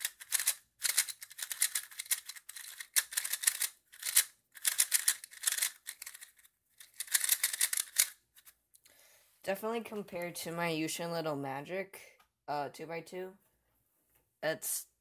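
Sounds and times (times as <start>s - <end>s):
plastic puzzle cube clicking: 0.0s - 8.5s.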